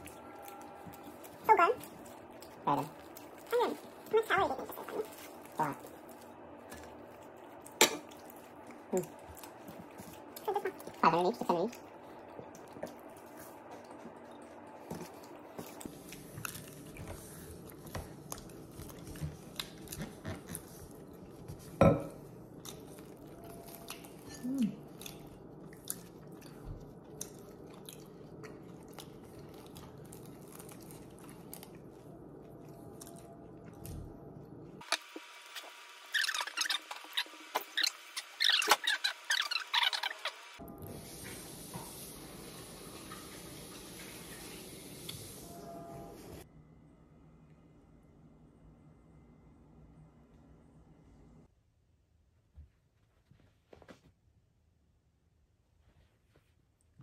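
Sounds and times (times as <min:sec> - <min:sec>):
person chewing flaky pastry: 0:00.0 - 0:34.8.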